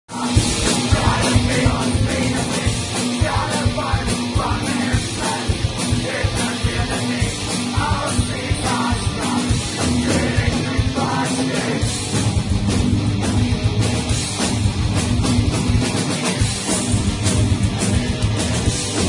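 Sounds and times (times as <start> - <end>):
man singing: 0.1 - 11.9
heavy rock band playing: 0.1 - 19.0.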